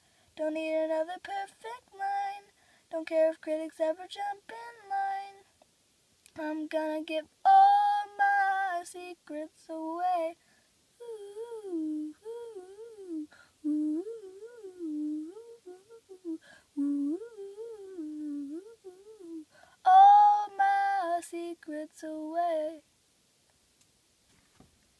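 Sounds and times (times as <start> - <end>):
boy humming: 11.0 - 20.4.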